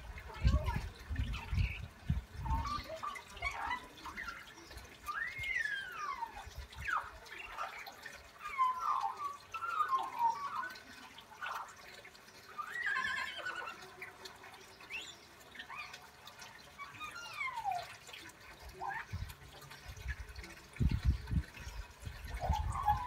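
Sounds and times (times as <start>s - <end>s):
magpie singing warbles and whistles: 0.4s - 11.8s, 12.4s - 13.9s, 16.7s - 19.3s, 21.0s - 23.0s.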